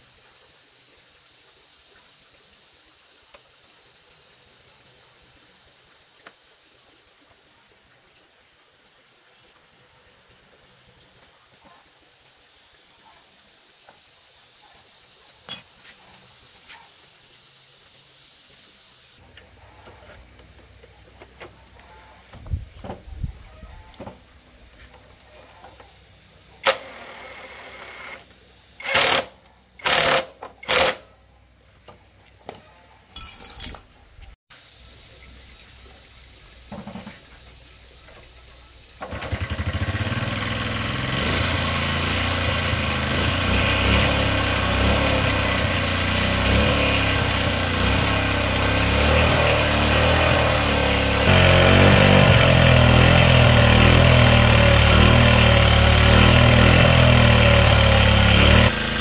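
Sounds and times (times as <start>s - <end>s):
cordless impact driver bursts: 26.6s - 28.2s, 28.8s - 31.0s
motorcycle engine running: 39.1s - 59.0s.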